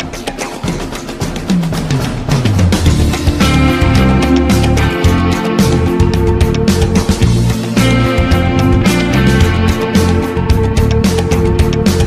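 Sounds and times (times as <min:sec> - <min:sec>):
drum-kit beat: 0:00.0 - 0:12.0
low bass line: 0:02.7 - 0:12.0.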